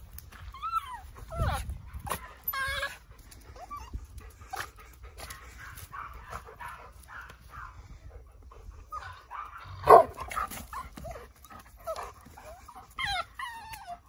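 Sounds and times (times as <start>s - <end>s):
puppy whining and yipping: 0.3s - 4.7s, 8.9s - 14.0s.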